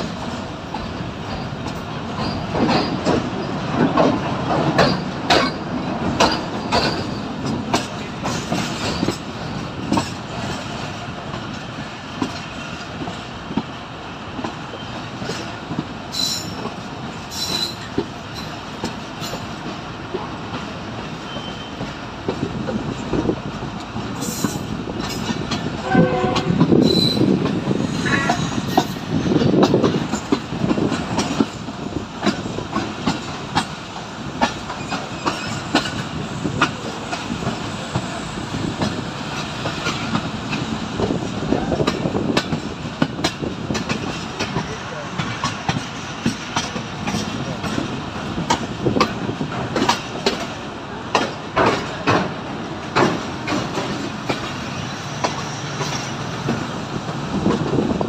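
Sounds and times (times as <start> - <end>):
train rumble: 0.0 - 58.0
wheels clacking over rail joints: 0.0 - 58.0
train horn: 25.8 - 27.2.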